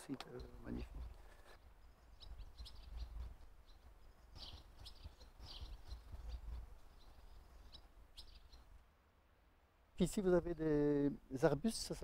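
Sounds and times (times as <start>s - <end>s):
faint high bird chirps: 0.3s - 8.8s.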